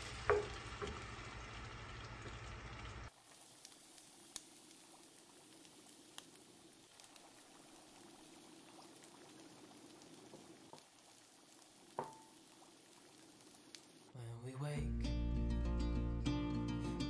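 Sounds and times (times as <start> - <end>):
sauce bubbling in a pan: 0.0 - 14.2
small pops: 3.3 - 14.1.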